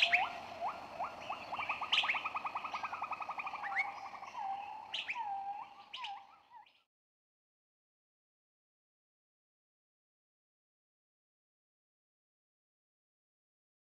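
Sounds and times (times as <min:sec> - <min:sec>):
fast bird trill: 0:00.0 - 0:06.3
rising bird whistles: 0:00.0 - 0:06.5
sharp high bird chirps: 0:00.0 - 0:06.5.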